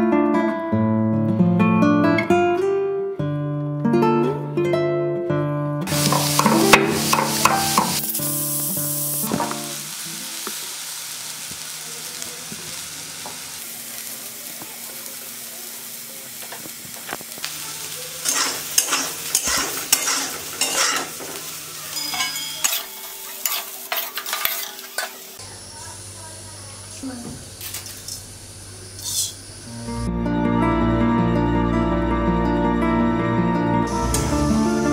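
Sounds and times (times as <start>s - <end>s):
acoustic guitar music: 0.0s - 10.4s, 29.8s - 34.9s.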